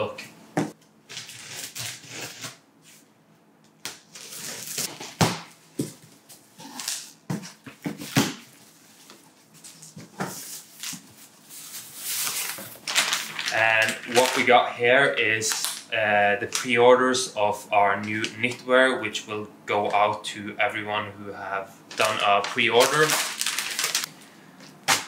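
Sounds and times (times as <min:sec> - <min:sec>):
scissors cutting packing tape: 0:01.1 - 0:02.6.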